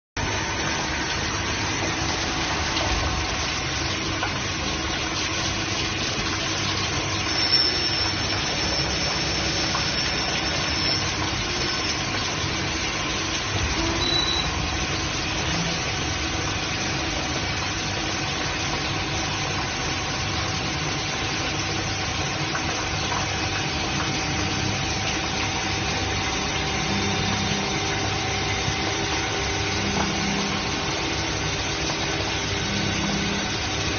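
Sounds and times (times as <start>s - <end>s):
grinding machine hum and hiss: 0.2s - 33.9s.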